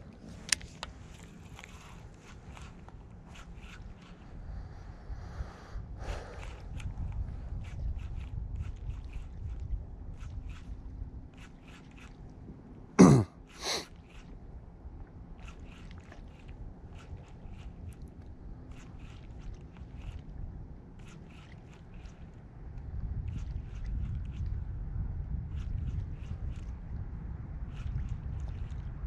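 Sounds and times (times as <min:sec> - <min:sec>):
man coughing: 0:13.0 - 0:13.8.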